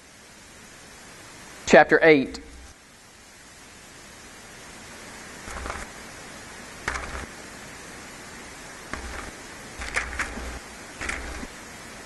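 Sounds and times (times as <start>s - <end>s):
steady hiss: 0.0s - 12.0s
pages turning: 5.5s - 5.9s, 6.9s - 7.3s, 8.9s - 11.5s.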